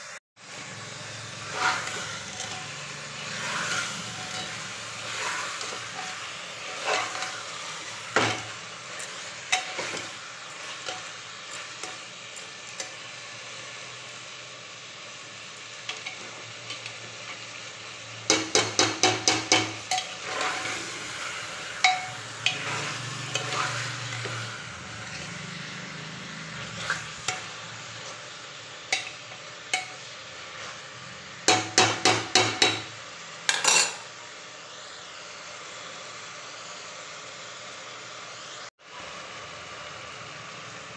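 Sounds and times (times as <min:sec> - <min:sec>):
food sizzling: 0:00.0 - 0:40.9
ladle scraping a metal pot: 0:01.5 - 0:11.0, 0:19.5 - 0:25.3
ladle clinking against pot: 0:21.8 - 0:22.6.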